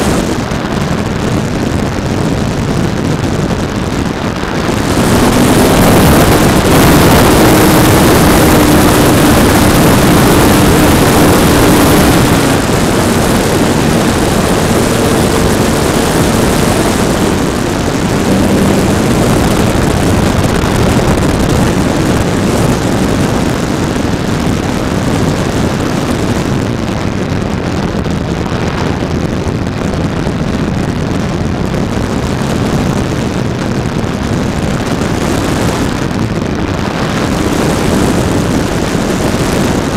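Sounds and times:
wind rushing over microphone: 0.0s - 39.9s
electric motor and propeller humming: 4.7s - 24.1s.

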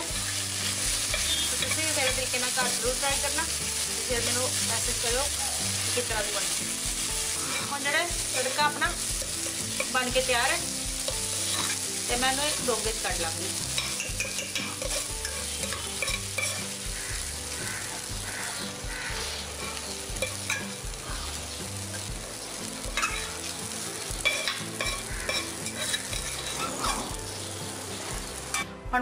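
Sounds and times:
food sizzling: 0.0s - 29.0s
spoon scraping a pan: 0.1s - 3.5s, 7.2s - 10.2s, 11.0s - 11.9s, 13.6s - 18.4s, 19.3s - 20.8s, 23.0s - 23.5s, 24.2s - 27.2s
spoon clinking on steel: 13.8s - 16.7s, 20.2s - 20.7s, 23.0s - 23.3s, 24.2s - 27.0s.

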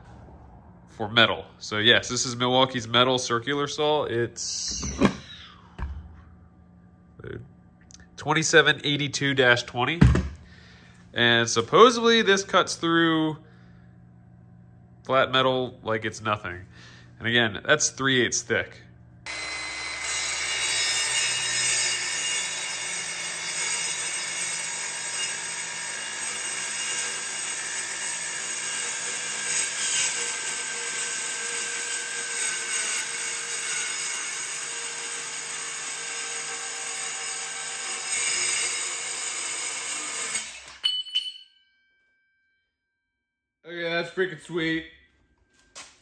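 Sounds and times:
circular saw cutting steel: 19.3s - 41.4s.

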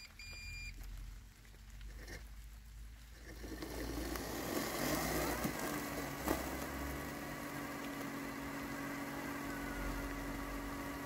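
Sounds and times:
robotic lawn mower motor whirring: 3.4s - 11.0s.

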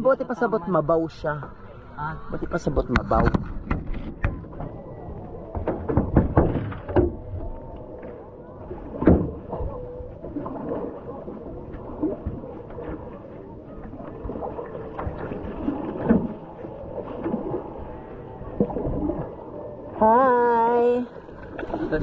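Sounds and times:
paddle splashing in water: 5.5s - 20.1s, 21.1s - 22.0s.

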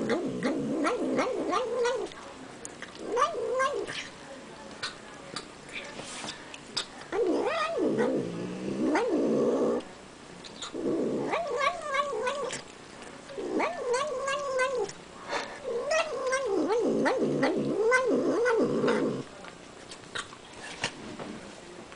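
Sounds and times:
cat growling while eating: 0.0s - 2.2s, 2.8s - 4.2s, 6.8s - 9.9s, 10.6s - 19.3s
cat licking and chewing clicks: 2.0s - 3.1s.

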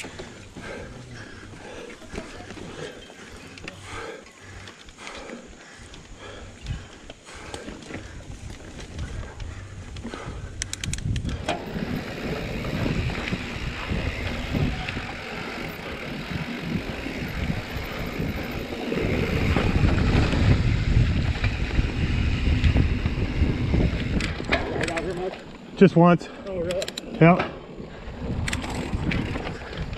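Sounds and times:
tyres rolling over dirt: 0.0s - 10.3s, 11.3s - 25.9s
wind buffeting microphone: 0.0s - 25.8s, 26.6s - 29.9s
bike rattling over bumps: 0.0s - 29.9s
sharp clicks: 9.4s - 11.6s, 26.4s - 27.4s, 28.4s - 29.2s.

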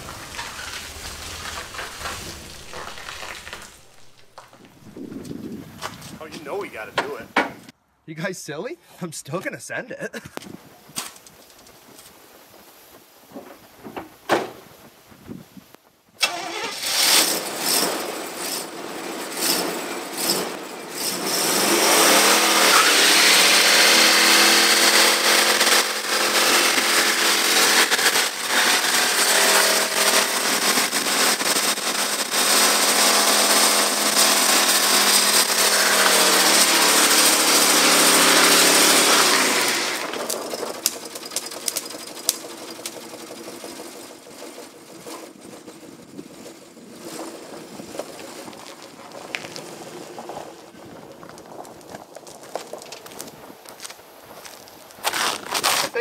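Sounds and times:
car engine revving: 0.0s - 5.2s, 16.2s - 45.8s
tyre spinning and squealing: 0.0s - 6.2s, 19.4s - 53.4s, 55.0s - 56.0s.

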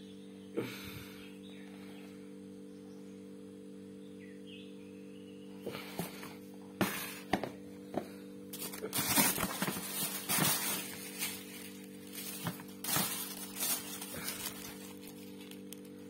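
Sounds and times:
tissue paper rustling and crinkling: 8.6s - 16.0s.

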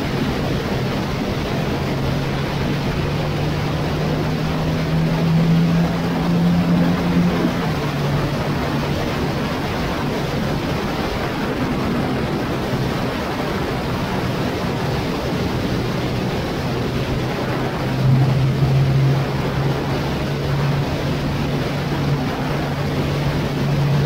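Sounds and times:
wind rush on microphone: 0.0s - 24.0s.

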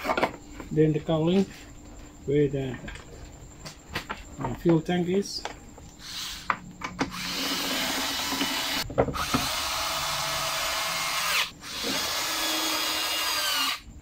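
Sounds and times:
power screwdriver running: 7.1s - 13.8s.

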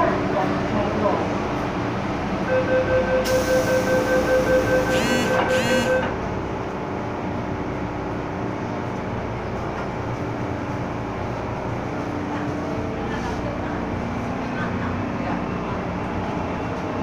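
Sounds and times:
train car hum and rumble: 0.0s - 17.0s
two-note train door warning beeps: 2.5s - 6.2s.

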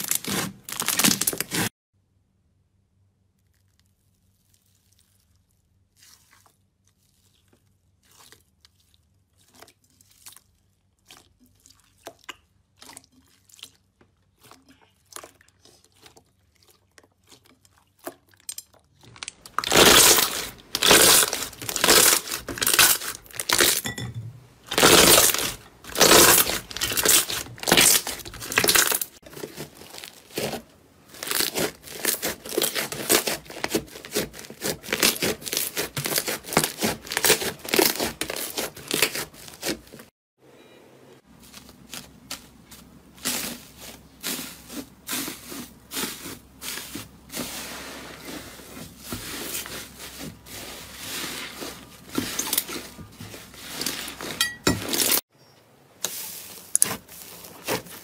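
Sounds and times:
slime squeezing strokes: 3.9s - 12.2s, 24.7s - 39.9s, 41.4s - 54.4s, 56.0s - 58.0s.

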